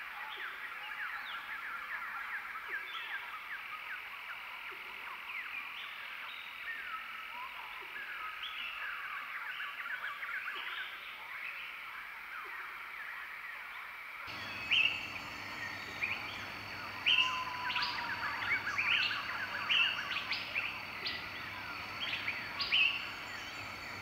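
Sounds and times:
chorus of animal chirps: 0:14.3 - 0:24.0
steady high hum: 0:14.3 - 0:24.0.

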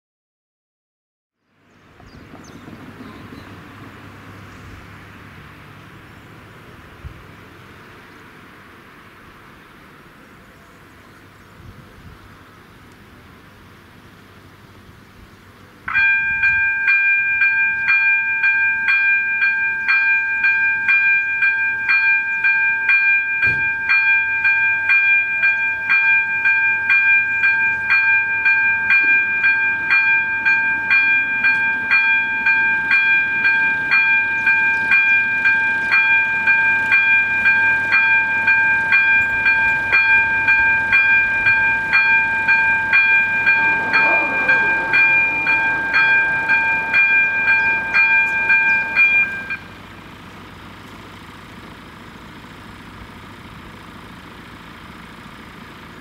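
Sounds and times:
level crossing bell ringing: 0:15.9 - 0:50.0.

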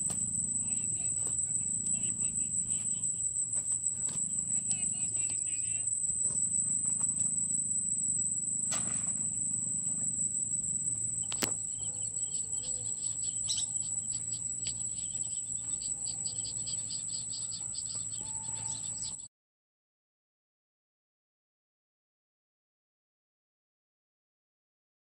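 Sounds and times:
low outdoor rumble: 0:00.0 - 0:19.2
insects droning: 0:00.0 - 0:19.3
quick insect chirping: 0:00.0 - 0:19.3
sharp clicks: 0:11.1 - 0:12.3.

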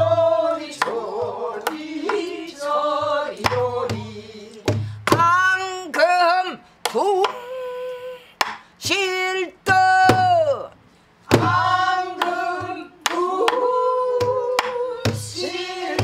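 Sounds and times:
woman singing long bending notes: 0:06.1 - 0:10.6.

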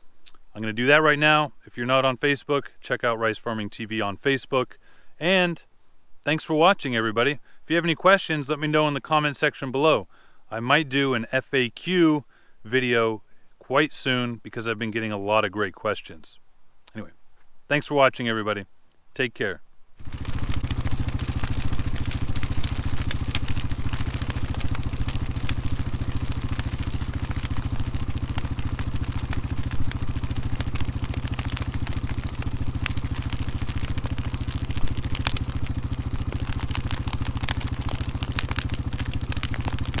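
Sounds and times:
engine idling: 0:20.0 - 0:40.0
sharp crackles: 0:20.0 - 0:40.0.

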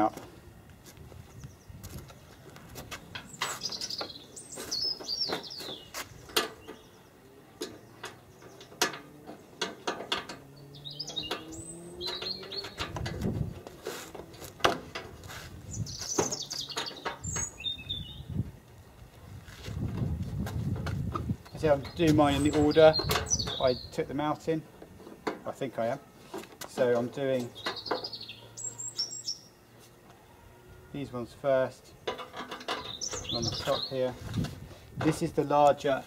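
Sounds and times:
small birds chirping: 0:01.2 - 0:13.7, 0:15.6 - 0:18.4, 0:21.4 - 0:24.6, 0:27.0 - 0:29.8, 0:32.7 - 0:34.4.

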